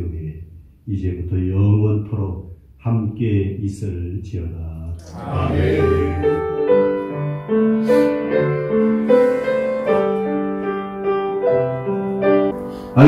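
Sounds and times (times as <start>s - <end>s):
keyboard playing sustained chords: 5.2s - 13.0s.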